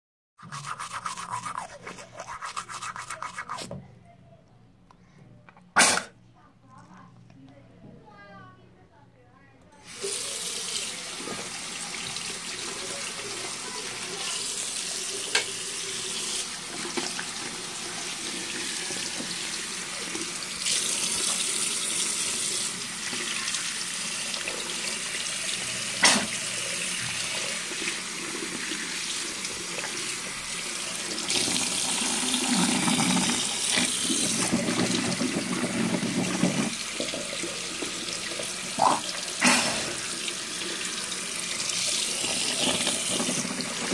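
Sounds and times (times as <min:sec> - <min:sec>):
tap running into a sink: 0:15.2 - 0:15.6, 0:16.7 - 0:17.6.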